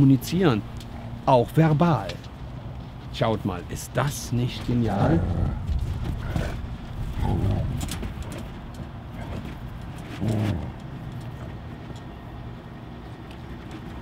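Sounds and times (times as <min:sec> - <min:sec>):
low steady rumble: 0:00.0 - 0:14.0
dogs growling: 0:04.6 - 0:12.0.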